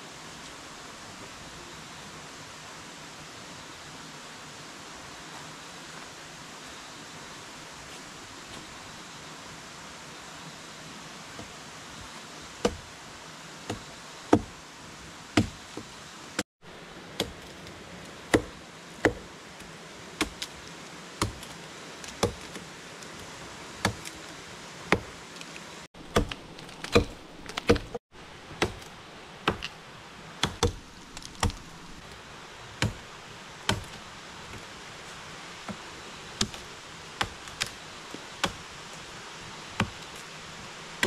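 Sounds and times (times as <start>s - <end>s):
river rushing: 0.0s - 41.0s
machete chopping wood: 12.6s - 12.9s, 13.7s - 14.5s, 15.4s - 15.6s, 18.3s - 19.3s, 20.2s - 20.5s, 21.2s - 22.6s, 23.8s - 24.2s, 26.0s - 28.0s, 28.6s - 29.8s, 30.4s - 31.8s, 32.8s - 33.0s, 33.7s - 34.0s, 36.4s - 36.6s, 38.4s - 38.7s, 39.8s - 40.2s.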